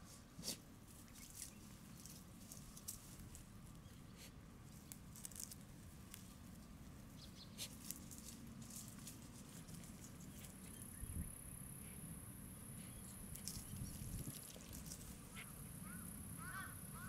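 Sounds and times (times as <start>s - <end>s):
paws rustling through dry grass: 0.0s - 11.0s, 12.9s - 15.5s.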